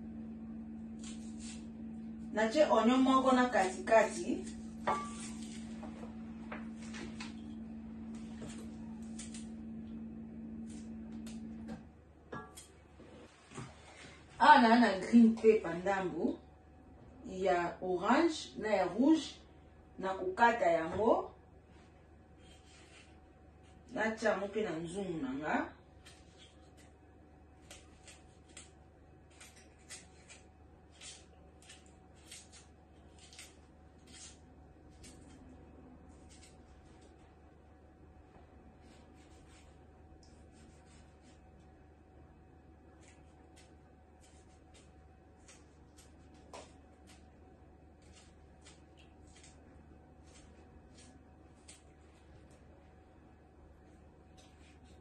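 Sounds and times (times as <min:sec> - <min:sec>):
steady low hum: 0:00.0 - 0:55.0
knife cutting vegetable: 0:00.9 - 0:05.9, 0:08.2 - 0:09.6, 0:22.4 - 0:23.8, 0:26.0 - 0:35.5, 0:36.1 - 0:37.2, 0:38.8 - 0:41.4, 0:42.9 - 0:47.3, 0:47.9 - 0:52.0, 0:54.3 - 0:55.0.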